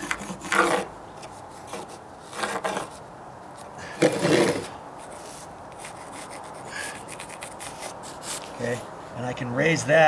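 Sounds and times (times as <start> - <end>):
metal level scraping on wood board: 0.0 - 0.9, 1.6 - 3.0, 4.0 - 8.7.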